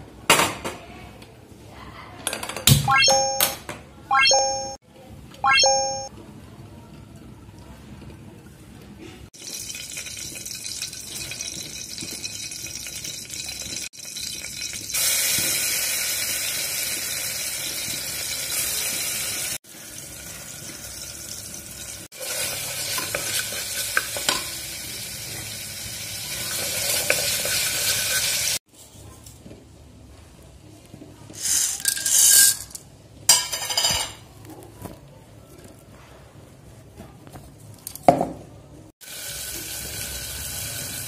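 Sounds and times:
oil sizzling in a pot: 0:09.4 - 0:28.6, 0:39.0 - 0:41.0.

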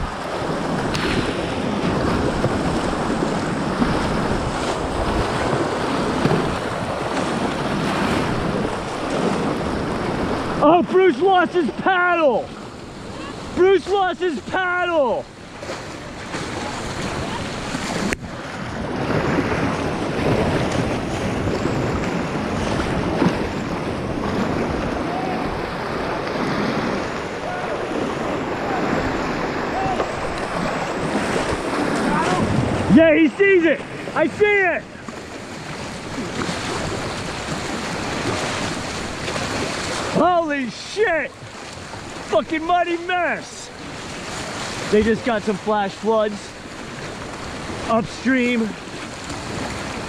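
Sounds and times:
wind buffeting microphone: 0:00.0 - 0:11.8, 0:12.5 - 0:40.4
waves splashing over boat: 0:00.0 - 0:50.0
whitewater rushing: 0:00.0 - 0:50.0.

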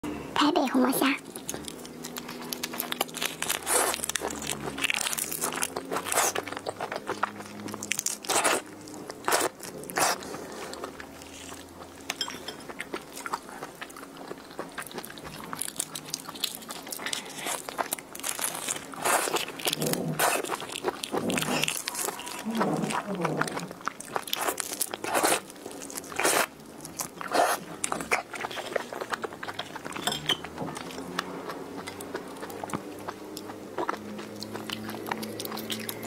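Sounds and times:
shrimp shells cracking: 0:01.3 - 0:09.7, 0:14.3 - 0:23.0.

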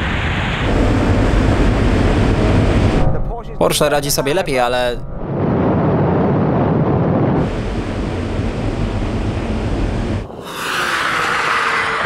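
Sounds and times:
hissing rush: 0:07.4 - 0:12.0
cars speeding road noise: 0:10.2 - 0:12.0.

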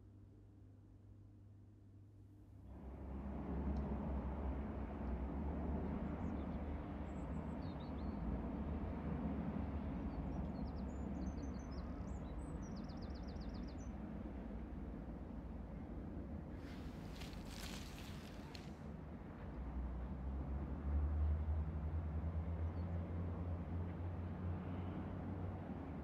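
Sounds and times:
small birds chirping: 0:16.7 - 0:18.7.

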